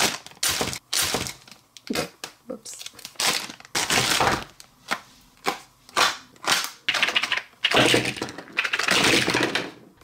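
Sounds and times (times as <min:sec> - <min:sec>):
plastic bottles clattering: 0:06.9 - 0:09.8
plastic bottles clicking and knocking: 0:06.9 - 0:09.8.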